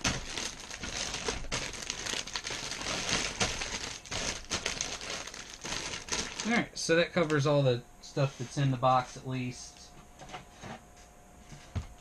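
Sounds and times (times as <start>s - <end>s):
plastic bags crinkling: 0.0s - 7.5s.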